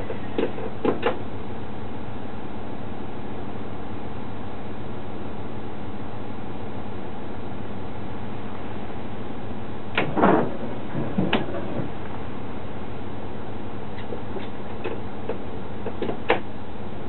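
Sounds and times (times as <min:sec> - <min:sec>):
railcar running noise: 0:00.0 - 0:17.0
clicks and knocks of controls: 0:09.9 - 0:12.0, 0:14.0 - 0:16.5.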